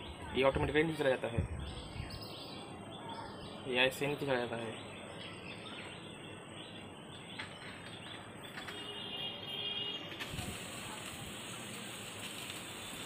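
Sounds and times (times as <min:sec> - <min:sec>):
faint bird chirps: 0:01.4 - 0:10.2
steady background hiss: 0:09.3 - 0:13.0.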